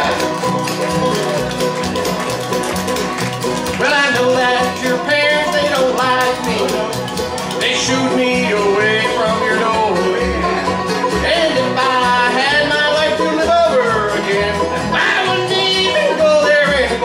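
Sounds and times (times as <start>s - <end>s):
banjo: 0.0s - 17.0s
bluegrass band playing: 0.0s - 17.0s
man singing: 3.8s - 17.0s.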